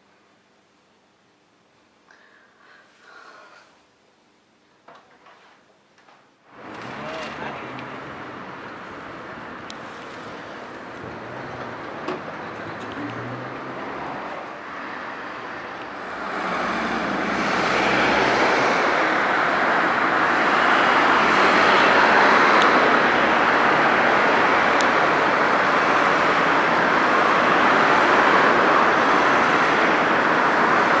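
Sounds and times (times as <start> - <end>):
bus passing: 6.5 - 31.0
city traffic rushing: 6.5 - 31.0.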